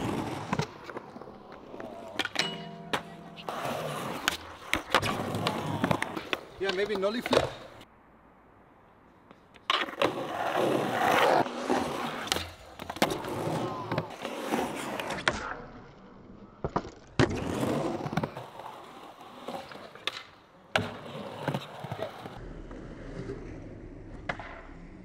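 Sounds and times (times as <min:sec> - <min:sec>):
skateboard landing slaps: 0:00.0 - 0:07.8, 0:19.9 - 0:22.3, 0:24.1 - 0:25.0
skateboard wheels rolling on concrete: 0:00.0 - 0:25.0
skateboard tail pops: 0:24.2 - 0:24.8.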